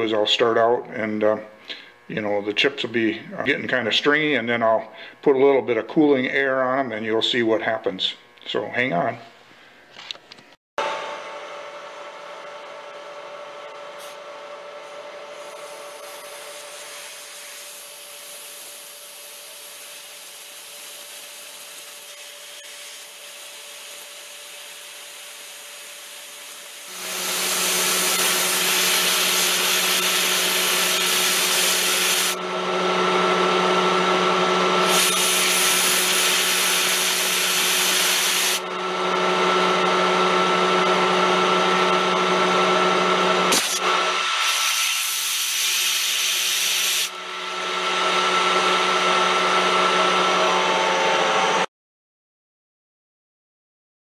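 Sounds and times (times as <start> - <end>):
compressed air hissing bursts: 16.4 - 32.4, 44.4 - 47.1
metal lathe humming: 26.3 - 44.7, 46.0 - 51.7.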